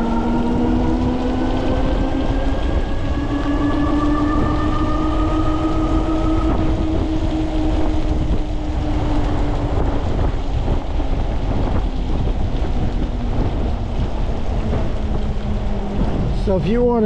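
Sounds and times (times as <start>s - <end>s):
tyres on wet pavement: 0.0s - 17.0s
wind buffeting microphone: 0.0s - 17.0s.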